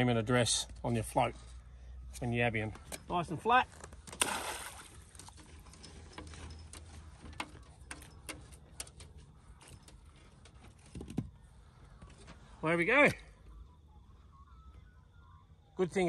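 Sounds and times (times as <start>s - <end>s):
net splashing onto water: 4.2s - 5.2s.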